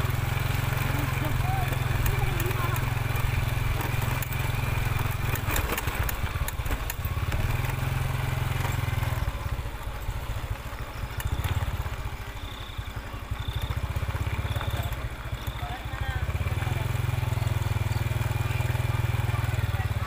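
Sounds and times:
small engine running: 0.0 - 20.0
sharp clicks: 10.6 - 12.2.

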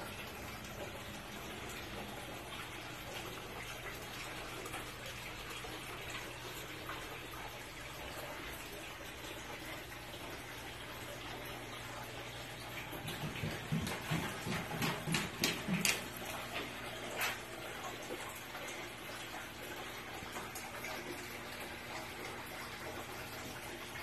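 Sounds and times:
running water: 0.0 - 24.0
knocks and rustles: 13.0 - 16.2.

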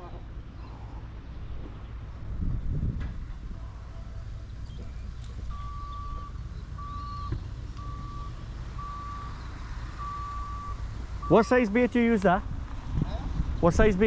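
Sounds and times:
low steady rumble: 0.0 - 14.0
reversing alarm beeping: 5.5 - 11.6.

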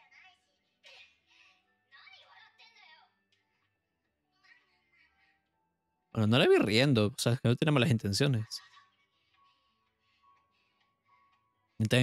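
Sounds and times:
faint background music: 0.0 - 12.0
faint dialogue: 6.2 - 8.8, 11.8 - 12.0.

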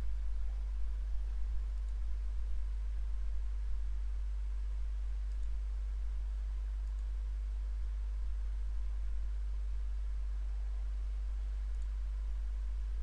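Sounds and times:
steady low hum: 0.0 - 13.0
computer mouse clicks: 1.7 - 2.0, 5.3 - 5.6, 6.8 - 7.2, 11.7 - 12.0.

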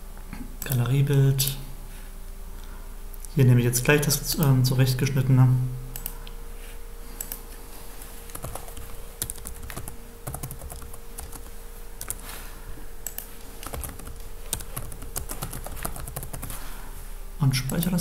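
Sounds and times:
faint electrical hum: 0.0 - 18.0
typing on computer keyboard: 8.3 - 12.2, 13.0 - 16.6.

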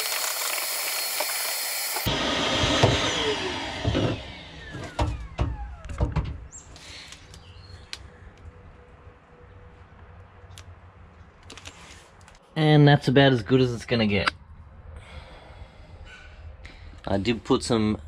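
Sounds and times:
handheld vacuum cleaner running: 0.0 - 5.2
vacuum motor winding down: 0.0 - 6.0.

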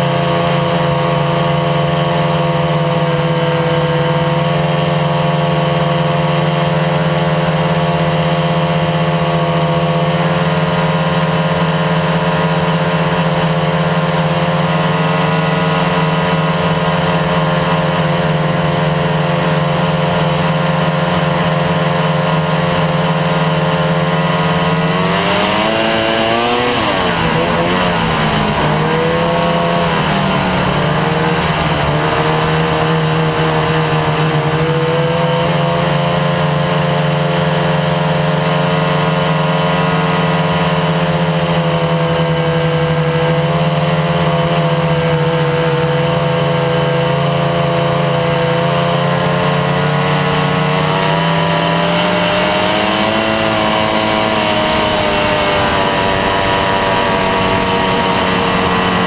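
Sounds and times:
snowmobile engine running: 0.0 - 59.0.

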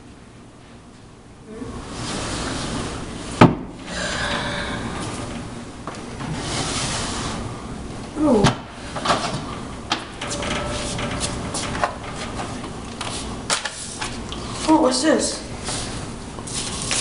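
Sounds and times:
wooden cabinet creaking: 9.0 - 13.2.

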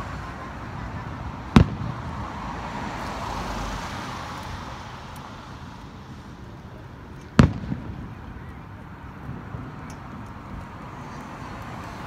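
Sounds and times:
firework shell bang: 1.5 - 2.0, 7.3 - 8.2.

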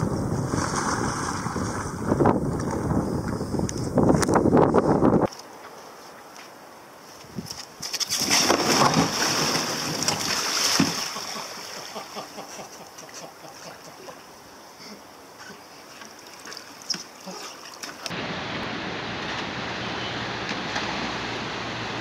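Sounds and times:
water splashing and sloshing: 0.0 - 3.4, 7.1 - 14.3, 15.1 - 19.6
wind: 0.0 - 22.0
kayak capsizing splash: 0.4 - 2.9, 8.1 - 12.2
surf: 7.8 - 12.4.

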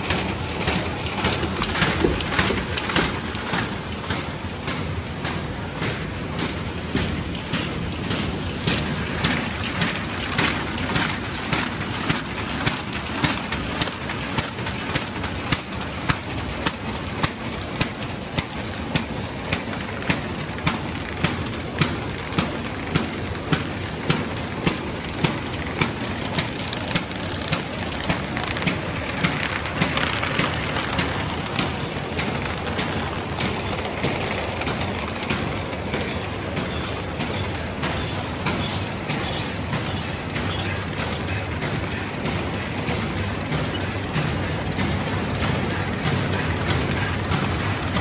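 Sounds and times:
sharp regular machine clack: 0.0 - 48.0
machine drone: 14.8 - 48.0.

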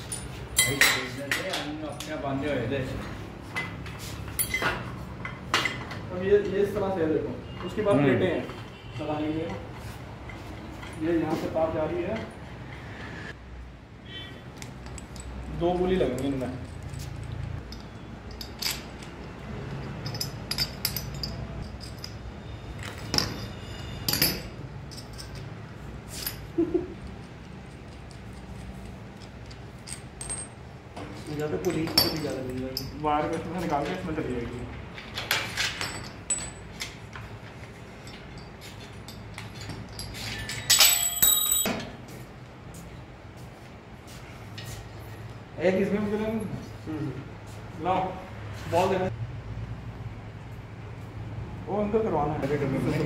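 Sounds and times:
metal cable hardware clanging: 0.0 - 2.2, 3.6 - 6.0, 14.7 - 30.6, 31.2 - 34.1, 34.9 - 42.0
metallic clicks and clinks: 14.6 - 30.6, 31.2 - 41.8.

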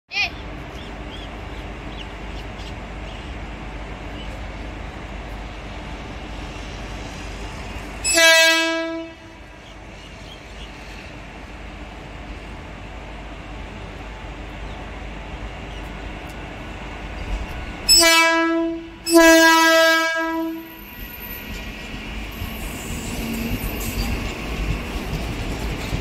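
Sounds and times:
railway station background noise: 0.1 - 26.0
high-pitched train horn blast: 8.0 - 9.5, 17.9 - 20.8.

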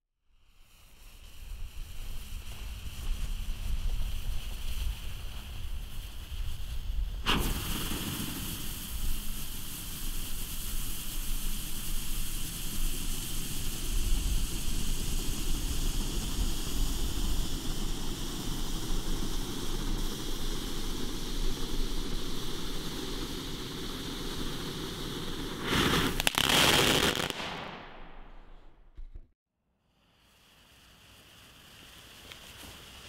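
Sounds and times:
fountain firework hissing: 0.4 - 27.4, 29.8 - 33.0
sharp pops: 7.2 - 9.2
rushing burst: 7.2 - 28.5.

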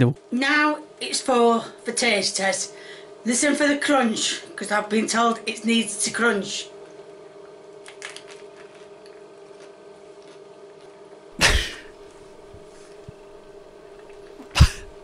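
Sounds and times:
steady electrical hum: 0.0 - 15.0
woman chewing bread roll: 7.3 - 11.3.

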